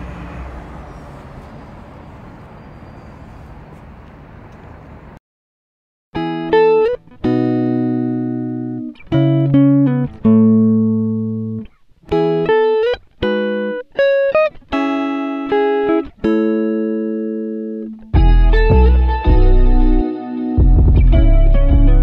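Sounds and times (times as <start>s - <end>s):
plucked guitar notes and chords: 6.2s - 22.0s
music with deep bass: 18.2s - 22.0s.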